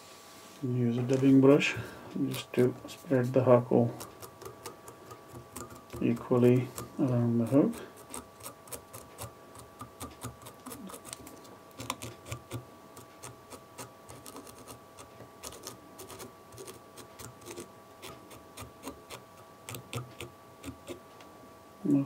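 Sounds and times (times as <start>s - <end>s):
faint steady hum: 0.0s - 22.0s
brush scratching and clicking: 2.2s - 21.0s.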